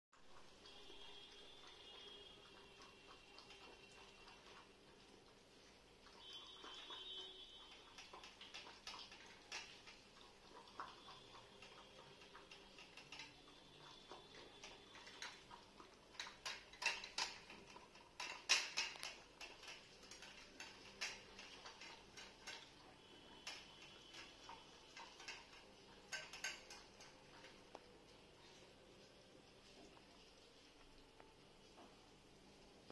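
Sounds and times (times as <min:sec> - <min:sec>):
kitten lapping milk: 0:00.5 - 0:26.6.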